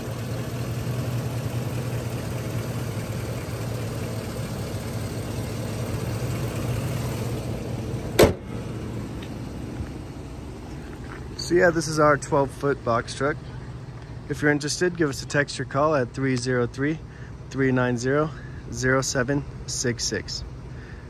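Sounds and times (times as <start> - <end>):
engine idling: 0.0 - 21.0
hood slamming shut: 6.8 - 9.4.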